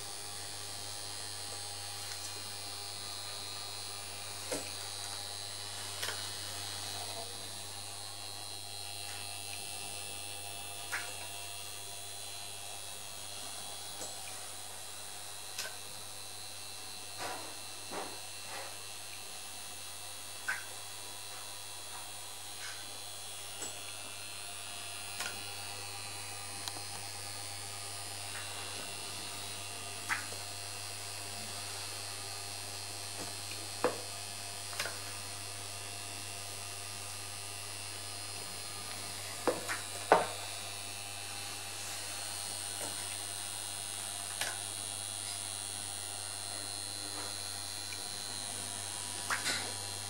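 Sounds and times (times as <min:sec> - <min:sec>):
electrical hum: 0:00.0 - 0:50.0.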